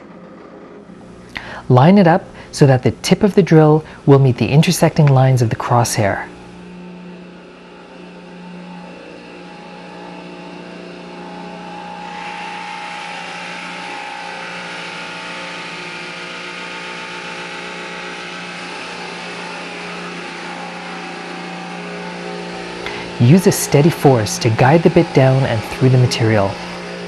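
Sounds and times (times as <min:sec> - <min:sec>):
drill press motor hum: 0:00.0 - 0:01.7, 0:06.2 - 0:27.0
drill bit hissing through board: 0:09.4 - 0:27.0.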